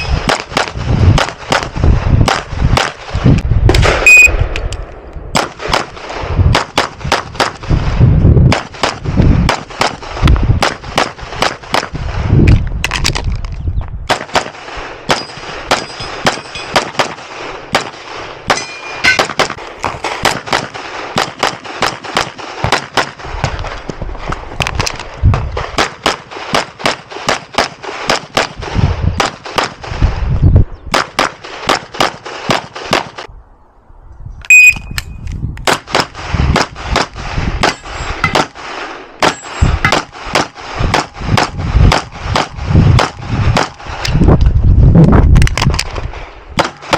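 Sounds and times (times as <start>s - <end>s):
pistol shots: 0.0s - 3.1s, 3.7s - 4.7s, 5.3s - 7.7s, 8.4s - 12.0s, 14.1s - 23.6s, 25.7s - 29.9s, 30.9s - 33.3s, 35.6s - 44.0s, 46.6s - 46.9s
short metallic ring: 18.6s - 19.2s, 34.5s - 35.2s.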